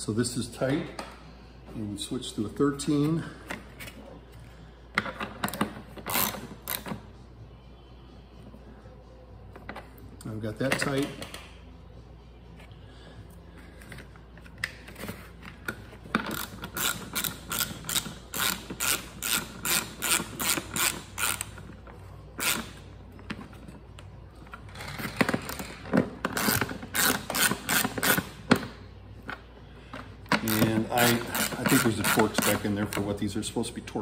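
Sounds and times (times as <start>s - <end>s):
ratchet wrench clicking: 6.1s - 6.9s, 16.3s - 21.7s, 30.4s - 33.0s.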